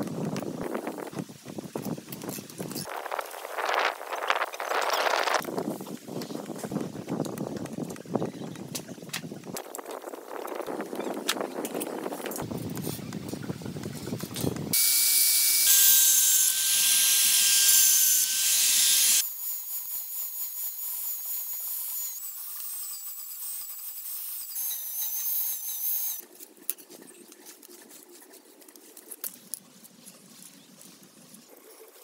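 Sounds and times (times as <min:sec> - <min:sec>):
angle grinder cutting metal: 0:14.8 - 0:26.2.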